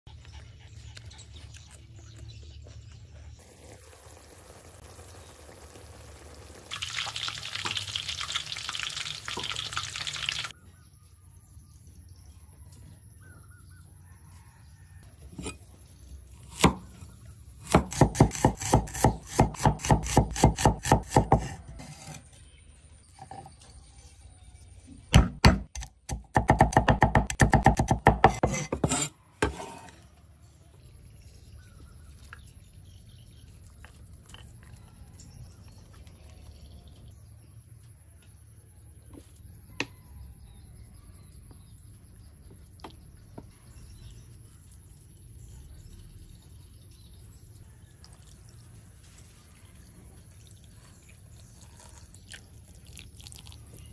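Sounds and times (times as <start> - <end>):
running water: 3.4 - 10.5
cleaver chopping on wooden board: 17.6 - 21.6, 25.2 - 29.1.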